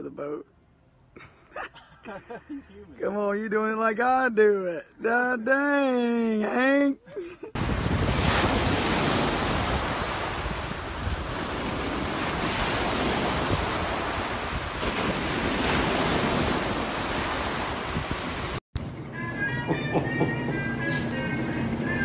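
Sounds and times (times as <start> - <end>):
surf breaking on beach: 7.6 - 18.6
wind buffeting microphone: 7.6 - 18.6.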